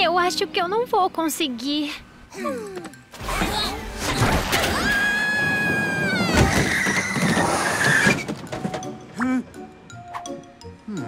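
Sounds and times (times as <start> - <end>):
luggage clattering and tumbling: 4.4 - 9.1.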